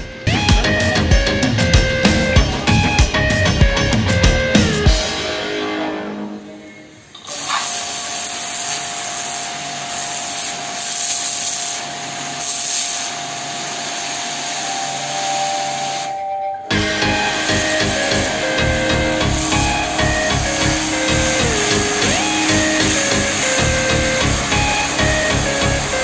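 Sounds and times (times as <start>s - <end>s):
pressure washer jet hissing: 7.2s - 16.1s, 16.7s - 26.0s.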